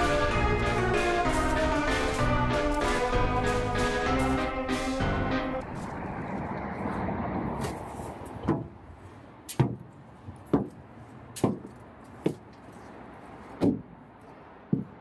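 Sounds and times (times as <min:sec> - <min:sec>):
footsteps on metal steps: 0:00.0 - 0:05.0, 0:07.7 - 0:08.8, 0:09.5 - 0:15.0.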